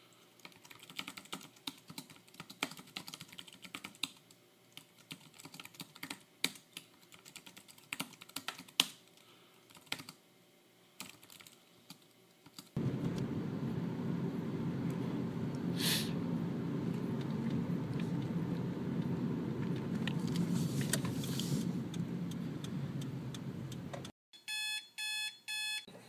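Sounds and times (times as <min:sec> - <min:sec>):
typing on computer keyboard: 0:00.4 - 0:09.0, 0:09.7 - 0:10.2, 0:11.0 - 0:12.8
car engine and road noise: 0:12.8 - 0:24.1
brief hiss: 0:15.6 - 0:16.3, 0:20.2 - 0:21.8.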